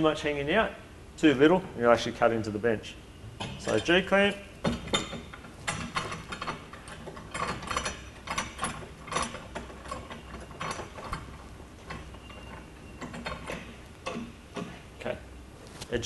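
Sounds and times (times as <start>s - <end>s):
metal clamp clicks and rattles: 4.6s - 14.8s.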